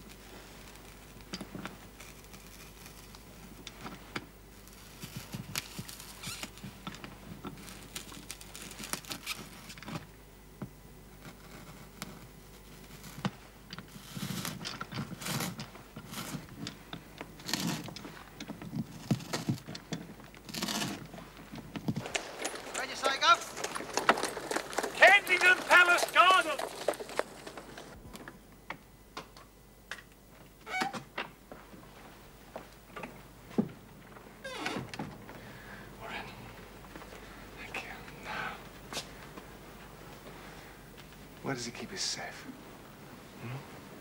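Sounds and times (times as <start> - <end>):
hand tool cutting wood: 20.5 - 21.1.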